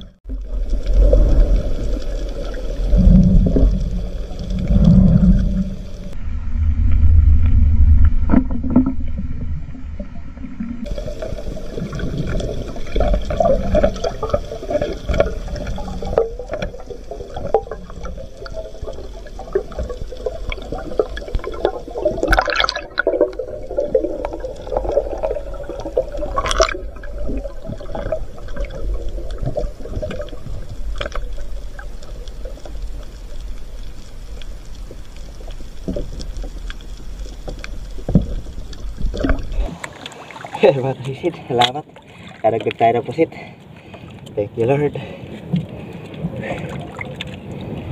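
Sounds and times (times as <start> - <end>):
underwater water rushing and gurgling: 0.0 - 47.9.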